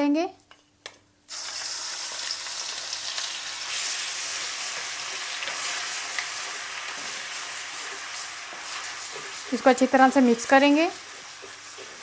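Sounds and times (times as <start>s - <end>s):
paste sizzling in hot oil: 1.3s - 12.0s
wooden spatula stirring: 3.7s - 12.0s.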